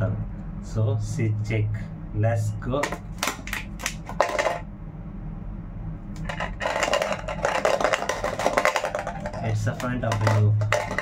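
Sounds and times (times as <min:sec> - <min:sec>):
coin rattling in plastic bottle: 0:06.2 - 0:11.0.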